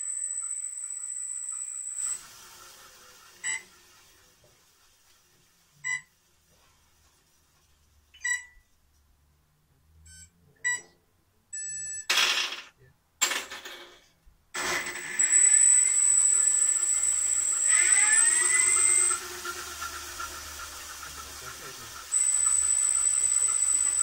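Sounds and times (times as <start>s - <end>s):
electronic beeps: 14.6s - 19.2s, 22.1s - 24.0s
spinning weapon whine: 14.6s - 24.0s.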